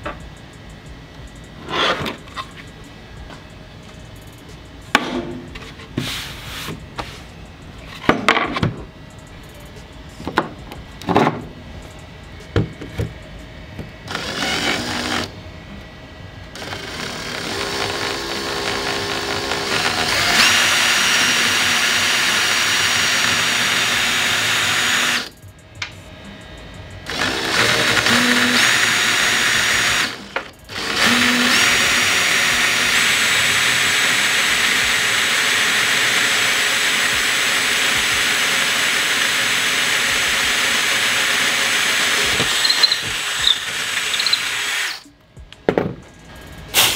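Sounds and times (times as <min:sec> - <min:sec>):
drill boring through wood: 0:14.1 - 0:15.3, 0:16.6 - 0:25.3, 0:27.1 - 0:45.1.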